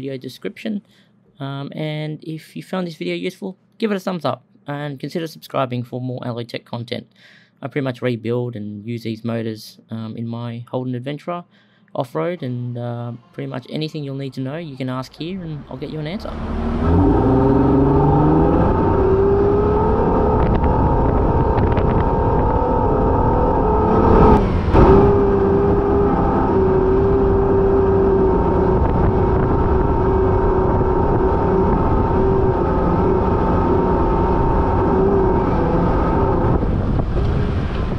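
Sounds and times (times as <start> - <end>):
loud rush of noise: 15.4 - 37.9
car engine running under load: 15.8 - 37.9.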